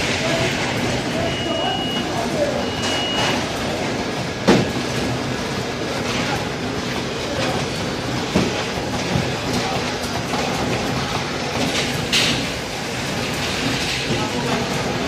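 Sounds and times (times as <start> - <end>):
packaging machinery running: 0.0 - 15.0
machine clicks and knocks: 6.0 - 15.0.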